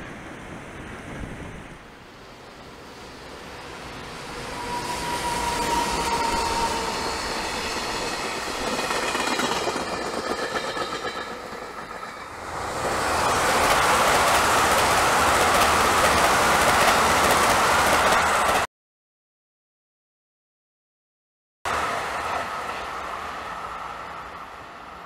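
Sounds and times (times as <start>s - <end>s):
train wheels rumbling on rails: 0.0s - 18.7s.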